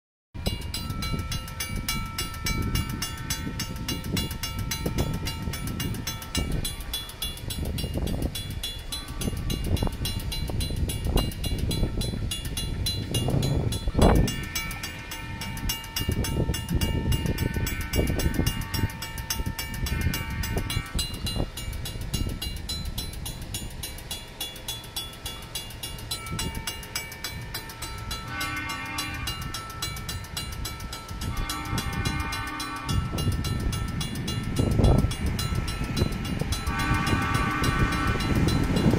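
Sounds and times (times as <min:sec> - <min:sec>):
crossing bell ringing: 0:00.4 - 0:38.9
wind rumbling on microphone: 0:00.4 - 0:38.9
vehicle horn: 0:17.0 - 0:19.1, 0:19.8 - 0:21.1, 0:28.2 - 0:29.6, 0:31.2 - 0:33.3, 0:36.6 - 0:38.5.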